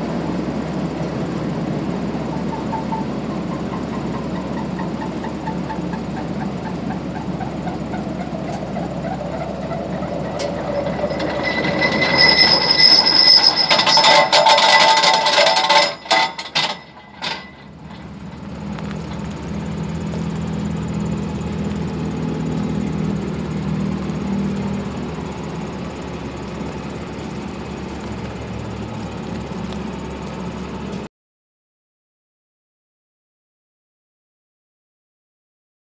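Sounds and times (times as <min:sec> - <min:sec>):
tractor engine hum: 0:00.0 - 0:31.1
high metallic whine: 0:00.3 - 0:30.3
flail mulcher running: 0:00.4 - 0:31.1.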